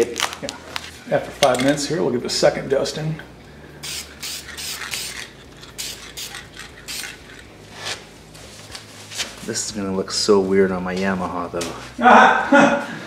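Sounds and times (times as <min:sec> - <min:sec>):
spray can ball rattling: 0:03.8 - 0:07.6.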